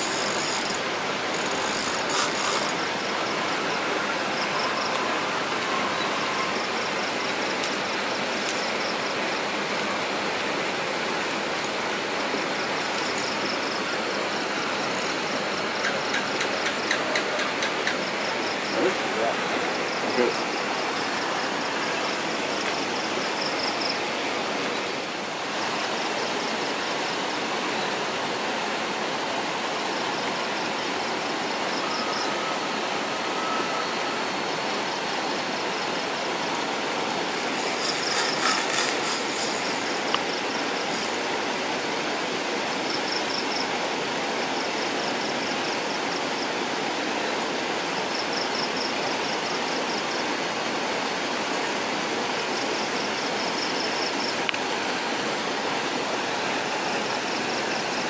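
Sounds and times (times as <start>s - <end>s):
insect trilling: 0.0s - 3.2s, 37.2s - 41.2s
steady rushing hiss: 0.0s - 58.0s.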